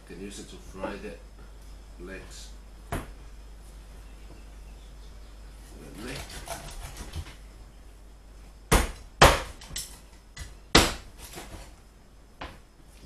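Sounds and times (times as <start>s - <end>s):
knife chopping through bone: 6.0s - 7.3s.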